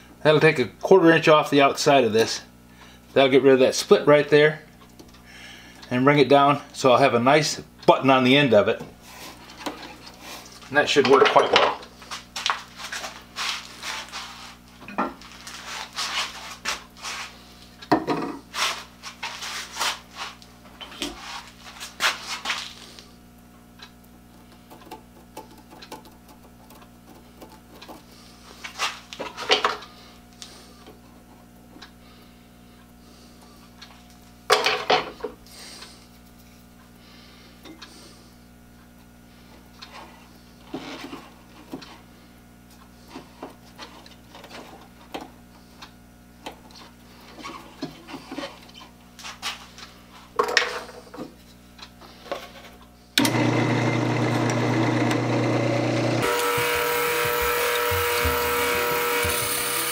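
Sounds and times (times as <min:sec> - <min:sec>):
tools and wood clattering: 0:11.0 - 0:11.8, 0:50.4 - 0:51.3
steady low hum: 0:11.7 - 0:53.2.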